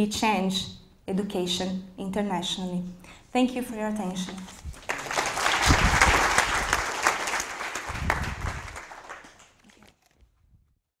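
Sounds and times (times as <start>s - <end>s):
audience applauding: 4.7s - 10.0s.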